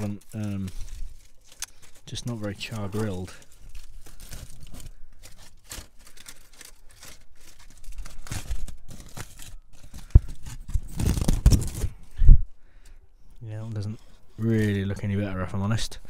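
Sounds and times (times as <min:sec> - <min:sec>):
foil crinkling: 0:00.0 - 0:12.1.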